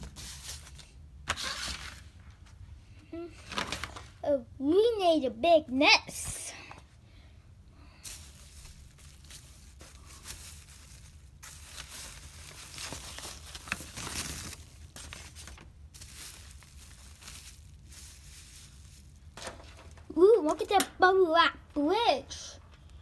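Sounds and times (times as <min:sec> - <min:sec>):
material rustling and crinkling: 0:08.0 - 0:20.2.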